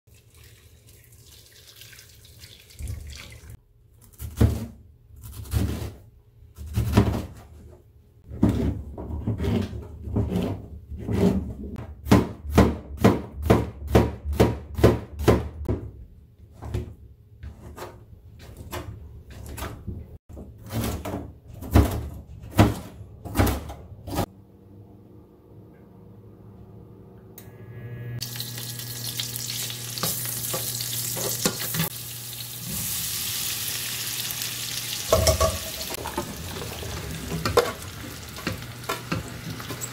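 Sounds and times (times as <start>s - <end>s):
knife chopping on cutting board: 12.0s - 15.9s.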